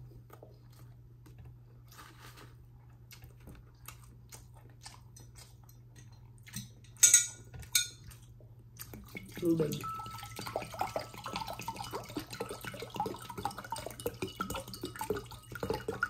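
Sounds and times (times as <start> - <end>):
chewing and mouth clicks: 2.8 - 9.2.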